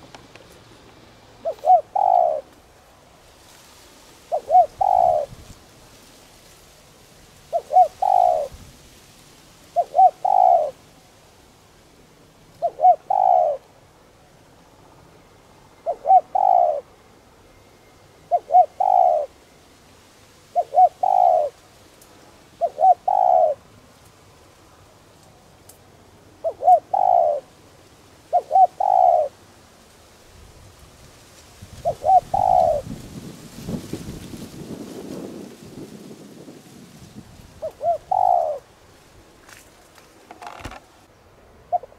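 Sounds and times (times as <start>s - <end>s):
dove cooing: 1.4s - 2.6s, 4.3s - 5.4s, 7.5s - 8.6s, 9.7s - 10.8s, 12.6s - 13.6s, 15.8s - 16.9s, 18.3s - 19.4s, 20.5s - 21.6s, 22.6s - 23.7s, 26.4s - 27.5s, 28.2s - 29.4s, 31.8s - 33.0s, 37.6s - 38.7s, 41.7s - 41.9s.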